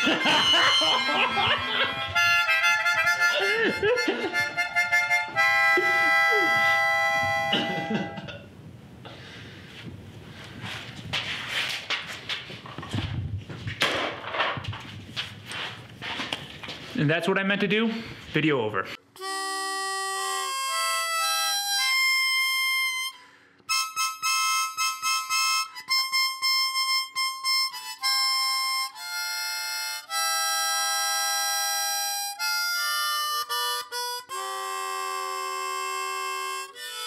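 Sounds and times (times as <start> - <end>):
harmonica playing a tune: 0.0 - 8.3, 19.0 - 37.0.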